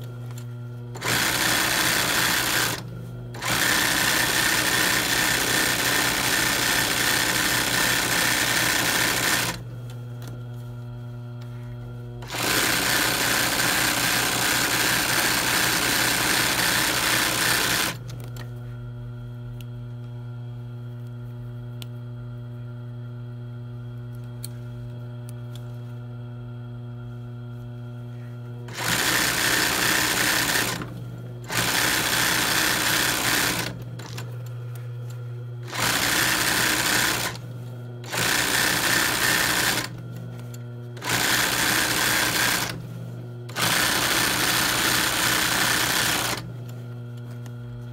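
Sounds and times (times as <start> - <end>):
steady motor hum: 0.0 - 47.9
sewing machine stitching: 1.0 - 2.8, 3.4 - 9.6, 12.2 - 18.0, 28.7 - 34.2, 35.6 - 37.4, 38.0 - 40.0, 41.0 - 42.8, 43.5 - 46.5.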